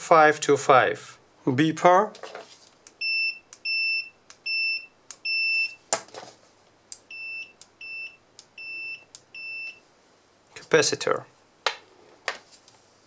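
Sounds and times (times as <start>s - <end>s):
test probes clicking: 2.8s - 5.7s, 6.9s - 7.8s, 8.4s - 9.3s
meter continuity beeps: 2.9s - 5.8s, 7.0s - 9.8s.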